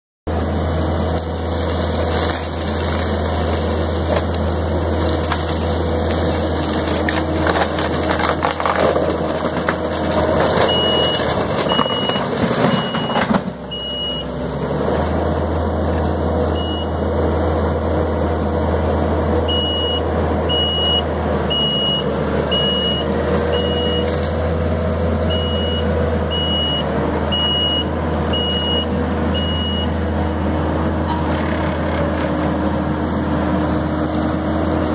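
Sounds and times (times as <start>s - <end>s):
diesel engine and hydraulics: 0.3s - 34.9s
mulcher crackling through brush: 0.3s - 34.9s
backup alarm beeping: 10.7s - 14.3s, 19.5s - 24.1s, 25.3s - 29.9s.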